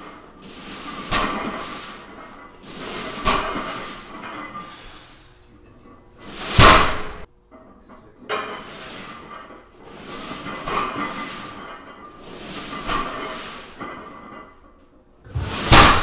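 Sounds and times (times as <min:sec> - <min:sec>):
barbell crashing: 0:00.5 - 0:04.8, 0:06.2 - 0:07.3, 0:15.3 - 0:16.0
barbell plates clanking on floor: 0:00.5 - 0:04.8.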